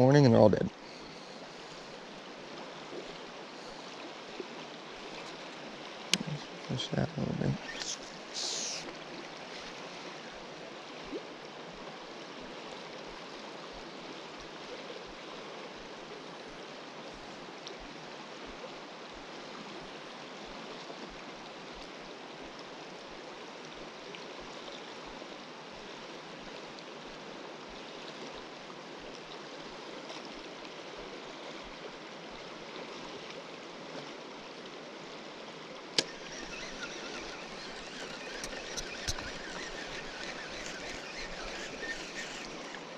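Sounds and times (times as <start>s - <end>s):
river water rushing: 34.4s - 42.9s
small tick: 36.0s - 42.8s.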